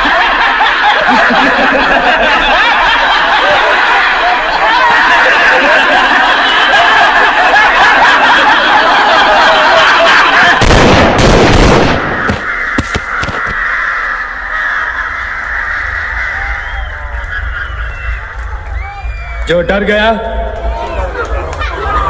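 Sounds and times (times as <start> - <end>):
men laughing loudly: 0.0 - 11.0, 12.0 - 18.8, 20.6 - 22.0
gunshot sound effects: 10.6 - 13.4.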